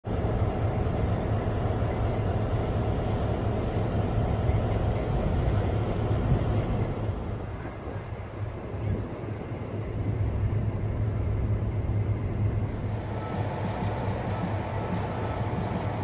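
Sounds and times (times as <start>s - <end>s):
diesel locomotive engine running: 0.0s - 16.0s.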